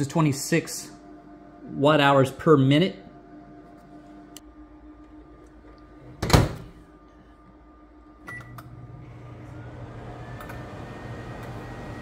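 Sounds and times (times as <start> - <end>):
microwave humming: 0.0 - 12.0
microwave door shutting: 6.2 - 6.8.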